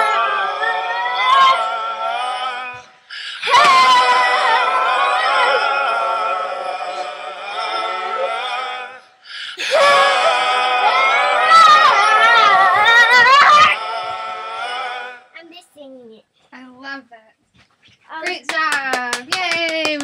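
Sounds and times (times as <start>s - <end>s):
child singing: 0.0s - 1.8s, 10.8s - 13.8s.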